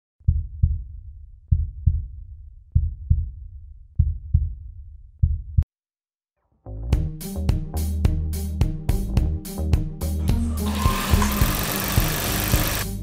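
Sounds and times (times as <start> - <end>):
heartbeat thumps: 0.2 - 5.7.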